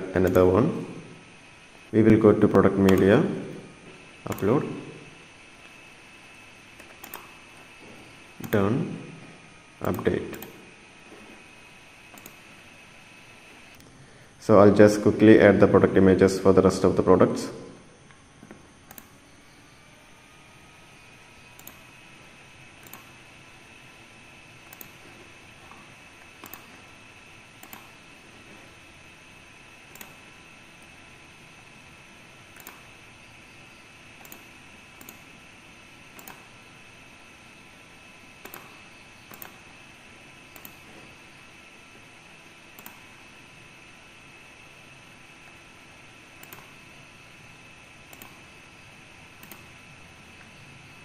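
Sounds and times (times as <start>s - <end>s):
steady hiss: 0.0s - 19.9s
thin high whine: 0.0s - 51.0s
computer mouse clicks: 0.2s - 0.5s, 2.8s - 3.1s, 4.3s - 4.5s, 6.7s - 7.7s, 8.4s - 8.7s, 9.8s - 10.6s, 12.1s - 12.7s, 18.4s - 19.2s, 21.5s - 21.9s, 22.8s - 23.2s, 24.6s - 26.9s, 27.6s - 28.0s, 29.9s - 30.2s, 32.5s - 32.9s, 34.2s - 35.3s, 36.1s - 36.5s, 38.4s - 39.7s, 40.5s - 40.9s, 42.4s - 43.1s, 46.4s - 46.8s, 48.1s - 48.5s, 49.4s - 49.8s.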